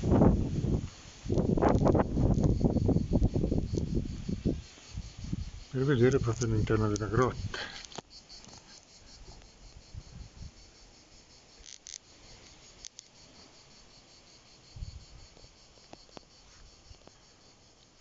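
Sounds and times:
insect chirping rapidly: 0.0s - 18.0s.

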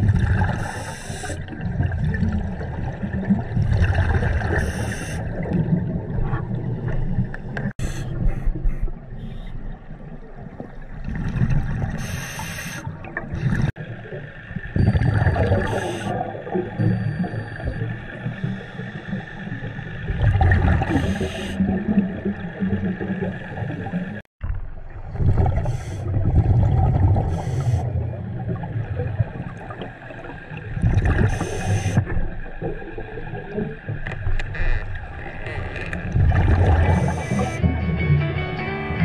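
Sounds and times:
diver breathing through regulator: 0.5s - 1.4s, 4.4s - 5.4s, 12.0s - 12.9s, 20.8s - 21.7s, 25.6s - 26.2s, 27.2s - 27.9s, 31.2s - 32.1s, 36.6s - 37.6s.

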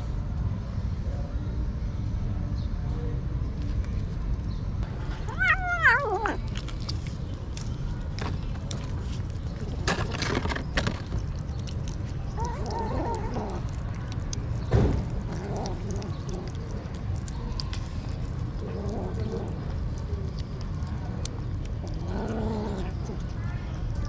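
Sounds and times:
steady low rumble: 0.0s - 24.0s
kittens mewing: 5.2s - 6.6s, 11.9s - 17.3s
kittens chewing clicks: 5.4s - 24.0s
thump: 14.7s - 15.1s.

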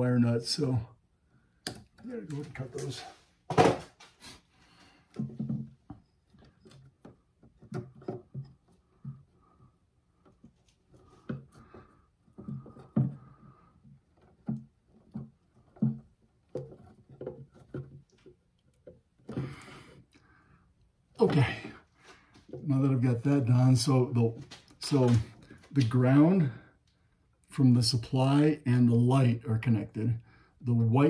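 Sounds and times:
wires knocking and rubbing: 5.1s - 20.1s.

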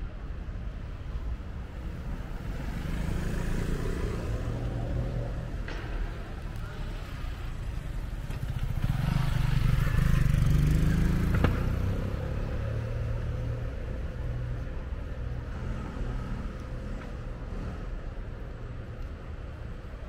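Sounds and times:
street traffic: 0.0s - 20.0s
motorcycle accelerating past: 8.3s - 13.4s.

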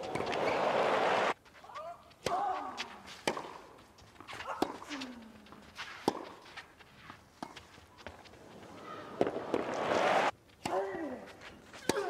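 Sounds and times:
tennis ball hit by rackets: 0.0s - 1.0s, 2.2s - 5.1s, 6.0s - 6.4s, 9.0s - 11.0s.

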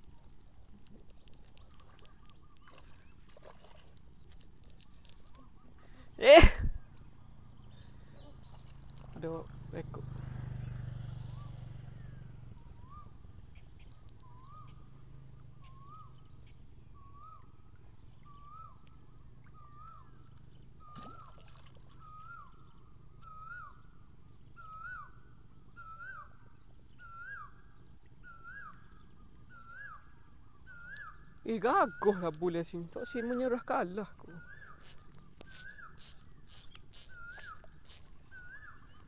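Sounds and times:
bird calling short hooked notes: 20.8s - 22.5s, 34.2s - 39.0s.

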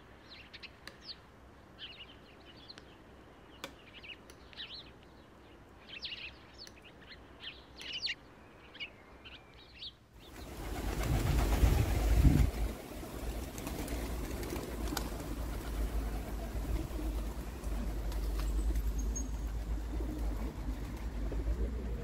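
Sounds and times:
small birds chirping: 0.0s - 21.2s
pigeons flapping wings: 10.3s - 22.0s
pigeons cooing: 10.4s - 22.0s.

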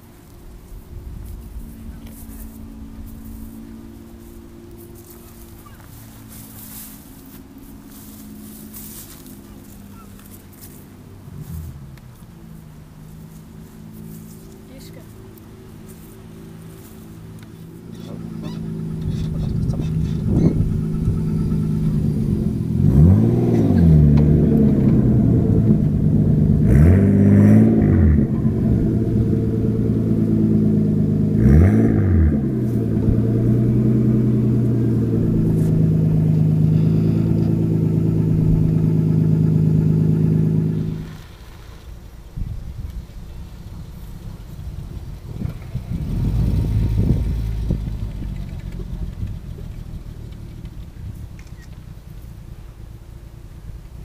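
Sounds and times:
car engine idling and revving: 0.0s - 54.0s.

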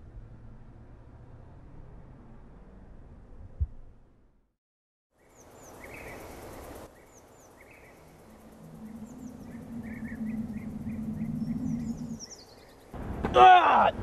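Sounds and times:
birds chirping: 5.2s - 13.2s
low steady hum: 7.8s - 13.2s.

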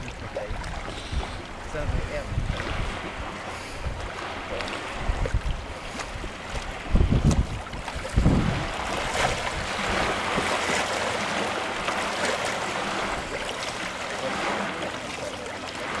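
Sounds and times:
wind buffeting microphone: 0.0s - 14.9s
small waves lapping: 0.0s - 16.0s.

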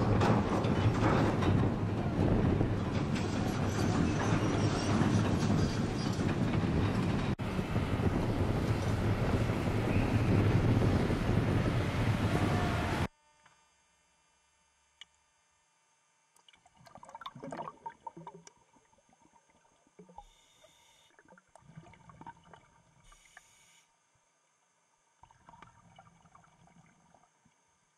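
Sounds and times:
machinery rumble: 0.0s - 13.1s
wind buffeting: 0.0s - 13.1s
water gurgling and sloshing: 16.3s - 23.5s, 25.0s - 27.9s.

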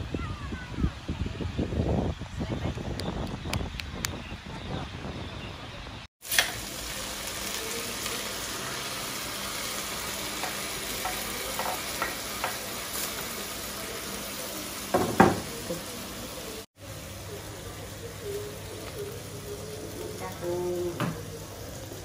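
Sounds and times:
clams sizzling in a wok: 6.2s - 22.0s.

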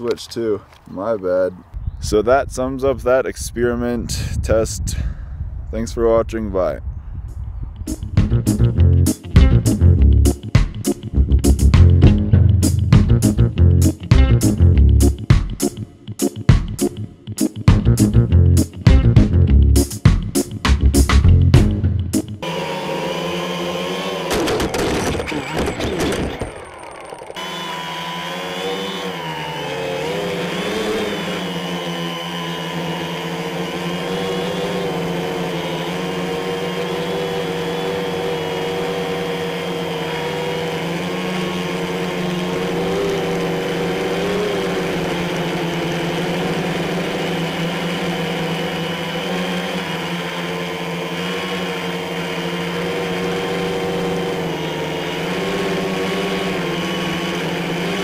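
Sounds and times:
drone propellers buzzing: 7.9s - 58.0s.

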